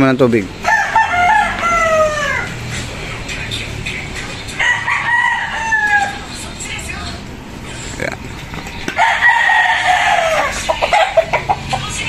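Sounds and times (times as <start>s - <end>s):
rooster crowing: 0.6s - 2.6s, 4.6s - 6.3s, 9.0s - 12.0s.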